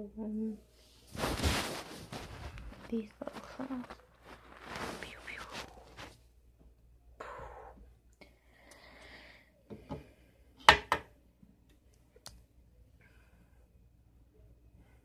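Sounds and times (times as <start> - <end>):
soft rustling: 0.7 - 6.4.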